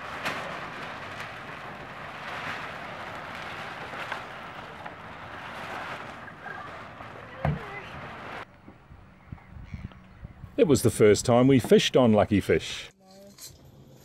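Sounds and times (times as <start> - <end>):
wind and water rushing: 0.0 - 8.5.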